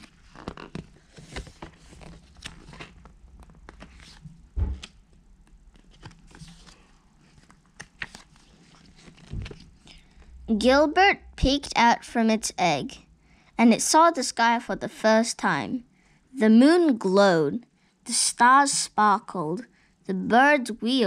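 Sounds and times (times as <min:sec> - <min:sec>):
book pages rustling: 0:00.0 - 0:10.3
dull thump: 0:04.6 - 0:04.9.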